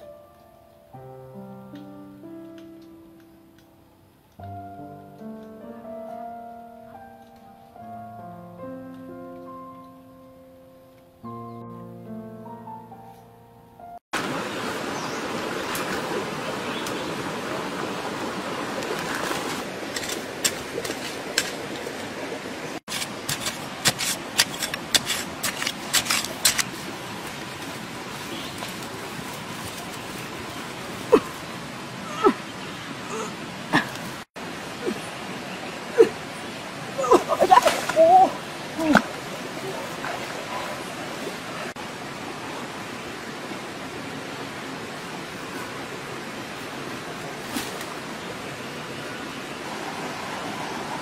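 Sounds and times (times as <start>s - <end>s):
steady rushing hiss: 14.2s - 51.0s.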